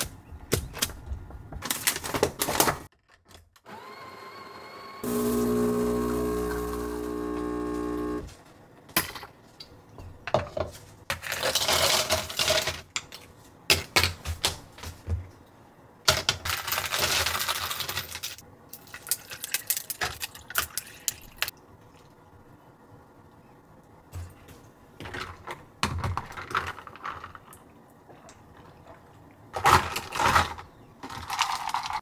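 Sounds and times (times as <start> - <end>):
espresso machine pump hum: 3.7 - 8.3
ice cubes clattering into tumbler: 11.1 - 12.8, 16.5 - 21.5, 29.5 - 32.0.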